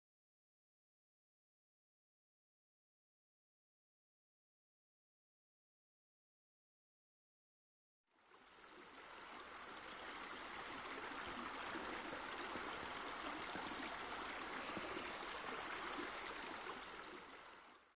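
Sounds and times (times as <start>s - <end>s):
running splashing water: 8.4s - 17.8s.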